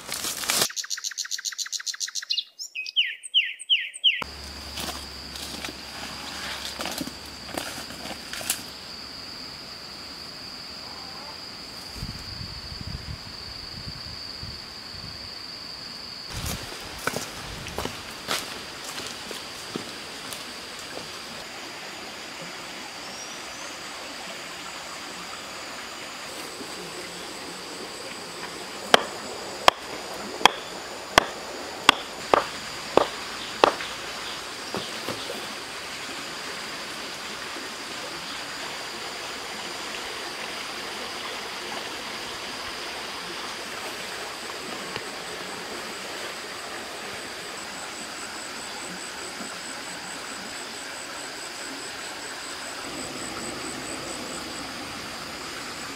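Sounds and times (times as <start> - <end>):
stream water running: 4.2 - 10.8, 16.3 - 55.9
sharp knocks: 28.9 - 33.9.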